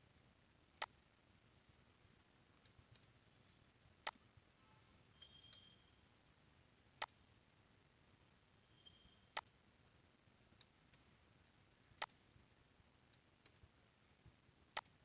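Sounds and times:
faint ticks: 2.5s - 4.3s, 7.0s - 7.2s, 9.3s - 9.6s, 10.5s - 12.3s, 13.0s - 15.0s
computer mouse clicking: 2.6s - 3.2s, 7.0s - 7.2s, 9.3s - 9.6s, 10.6s - 11.1s, 12.0s - 12.2s, 13.1s - 13.7s, 14.8s - 15.0s.

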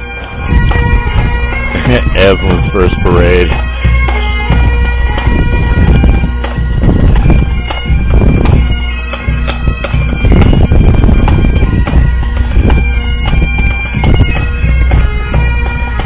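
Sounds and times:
bagpipes playing a tune: 0.0s - 16.0s
drum beats: 0.0s - 16.0s.

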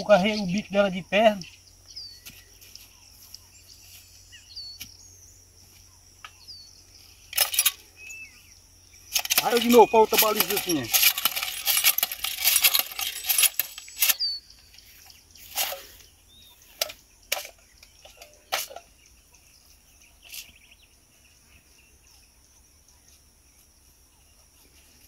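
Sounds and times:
hand planter jaws clacking: 9.1s - 14.2s.

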